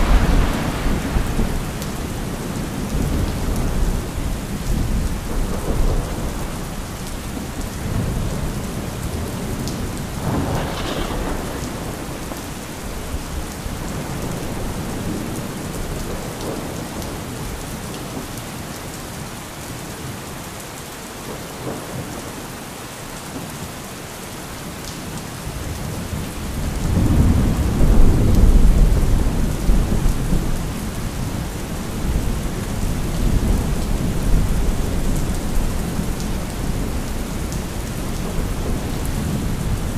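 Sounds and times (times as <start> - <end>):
rolling thunder: 0.0 - 17.6, 25.8 - 39.9
steady rain: 0.0 - 39.9.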